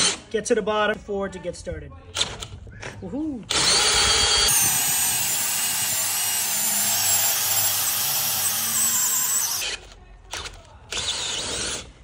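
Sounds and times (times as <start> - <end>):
drill with hole saw grinding: 3.5 - 9.8, 10.9 - 11.9.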